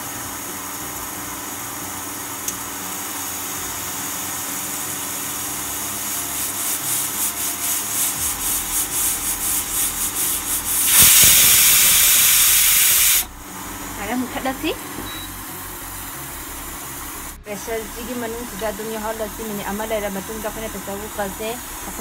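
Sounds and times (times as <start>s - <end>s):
pressure cooker steam hissing: 2.5s - 13.4s, 15.2s - 22.0s
pressure cooker whistle: 10.7s - 13.3s.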